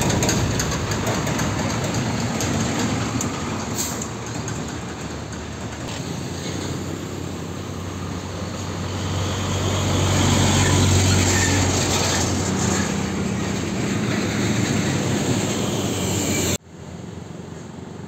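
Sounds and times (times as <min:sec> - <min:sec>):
truck diesel engine driving past: 0:00.0 - 0:17.4
other traffic: 0:00.0 - 0:18.0.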